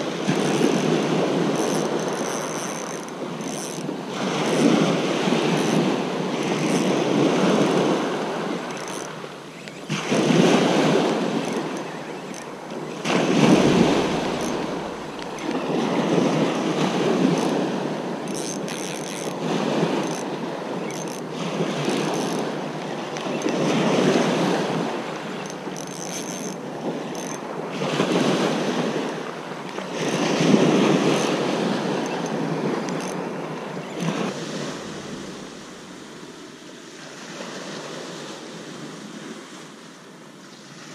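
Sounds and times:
waves breaking on shingle: 0.0s - 20.3s.

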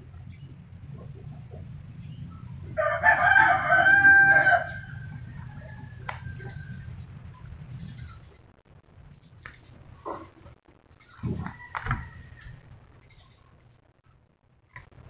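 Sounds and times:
faint low hum: 0.0s - 15.0s
rooster crowing: 2.7s - 7.1s, 11.2s - 12.7s.

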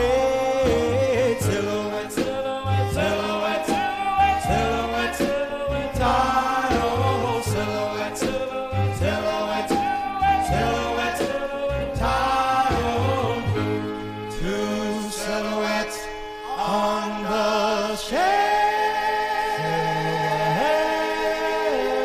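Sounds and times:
drums: 0.0s - 14.0s
vocal group singing harmonies: 0.0s - 22.0s.

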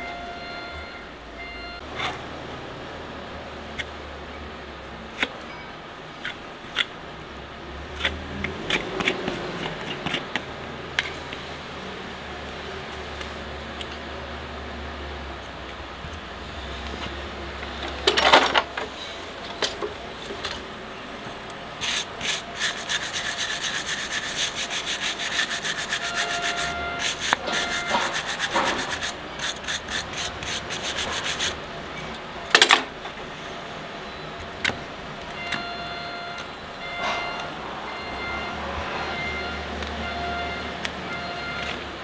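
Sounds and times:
hoof knife scraping hoof: 7.9s - 10.4s, 21.8s - 31.6s
quick scraping strokes: 21.8s - 31.6s.

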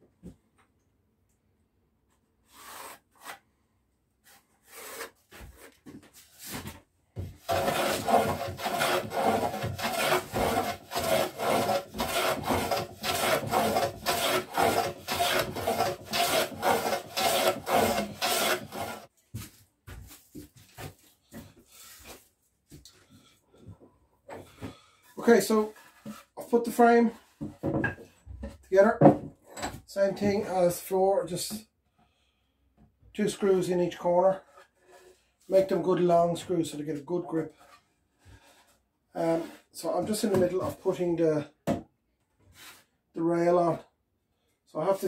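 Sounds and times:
hand plane shaving wood: 4.3s - 5.7s, 7.4s - 19.1s.

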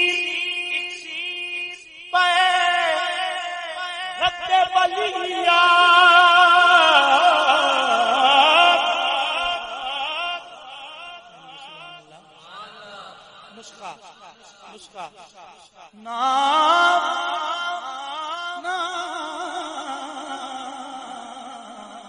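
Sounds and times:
man singing melismatic melody: 0.0s - 12.4s.

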